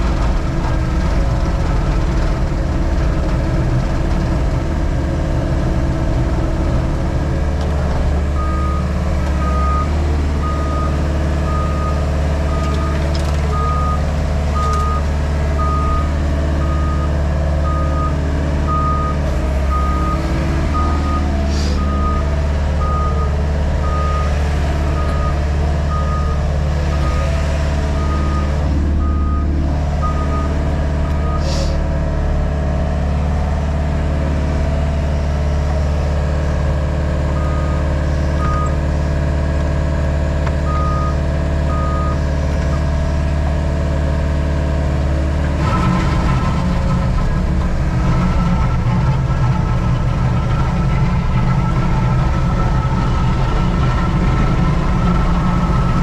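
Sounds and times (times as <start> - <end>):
diesel engine running: 0.0 - 56.0
reversing alarm beeping: 15.6 - 24.3, 27.9 - 31.4
short hisses: 21.5 - 21.8, 31.4 - 31.8.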